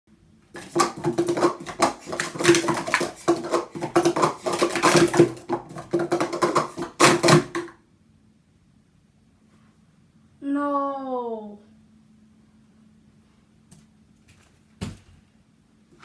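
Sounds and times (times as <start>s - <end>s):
plastic cups clacking: 0.5s - 7.8s.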